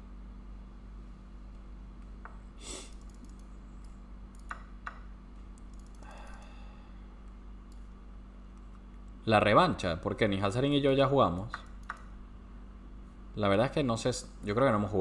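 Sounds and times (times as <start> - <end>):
low steady hum: 0.0 - 15.0
computer mouse clicks: 2.9 - 4.7, 5.6 - 6.6, 7.2 - 7.9, 11.3 - 12.1.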